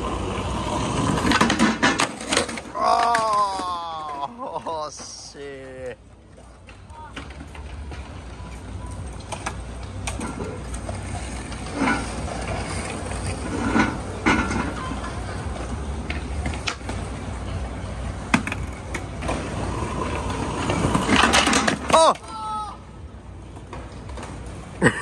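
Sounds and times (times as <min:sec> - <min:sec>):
low city rumble: 0:00.0 - 0:25.0
skateboard clattering on stone: 0:00.2 - 0:05.1, 0:18.2 - 0:22.3.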